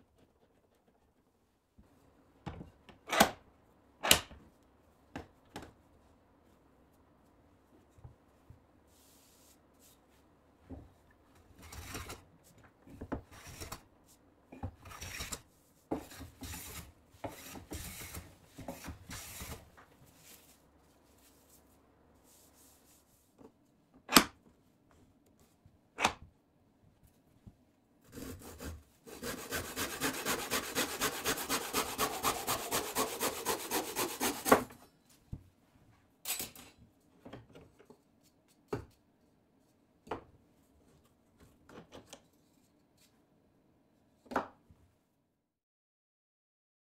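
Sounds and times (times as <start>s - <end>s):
hand tool strokes on wood: 28.1s - 34.7s.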